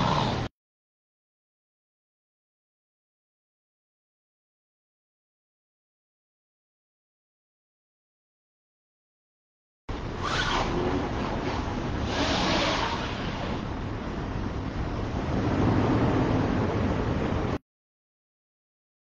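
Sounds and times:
steady rushing noise: 9.9s - 17.6s.

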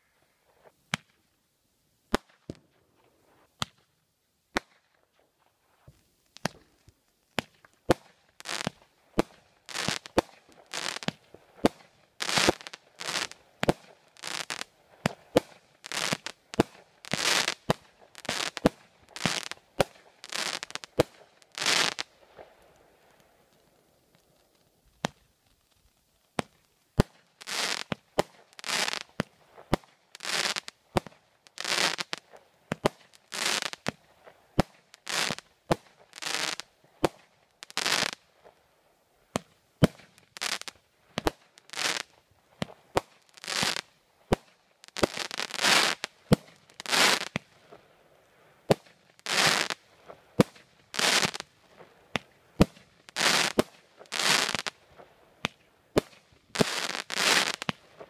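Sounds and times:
fireworks hissing bursts: 9.6s - 11.2s, 12.2s - 13.4s, 14.2s - 23.4s, 27.4s - 30.7s, 31.5s - 33.9s, 36.1s - 36.6s, 40.4s - 40.7s, 43.3s - 43.9s, 44.8s - 46.1s, 46.7s - 47.4s, 49.2s - 49.8s, 50.9s - 51.5s, 52.6s - 54.7s, 56.0s - 58.0s.

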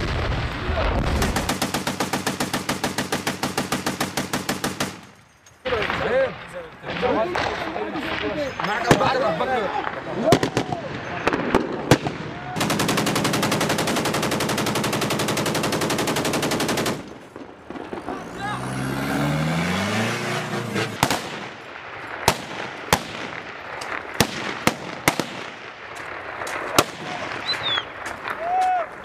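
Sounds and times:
machine-gun burst: 1.0s - 5.1s, 11.8s - 17.1s
single gunshots: 17.0s - 25.8s
droning rising in pitch: 18.4s - 21.0s.

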